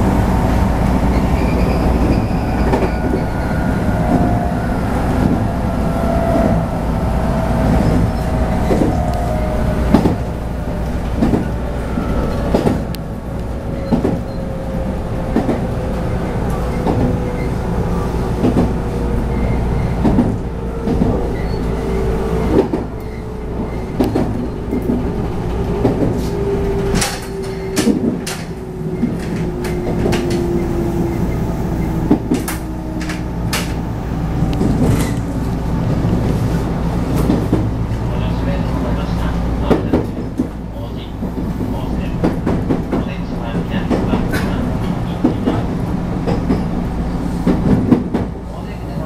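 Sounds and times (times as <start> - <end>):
train rumble and drive hum: 0.0 - 49.0
wheels clacking over rail joints: 15.2 - 38.1.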